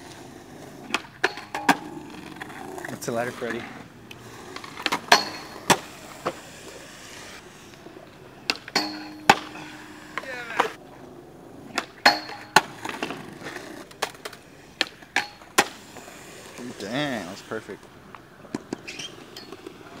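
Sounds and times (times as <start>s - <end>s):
skateboard wheels rolling: 0.0s - 20.0s
skateboard cracks and slaps: 0.8s - 3.7s, 4.5s - 6.5s, 8.4s - 10.8s, 11.7s - 16.1s, 18.1s - 20.0s.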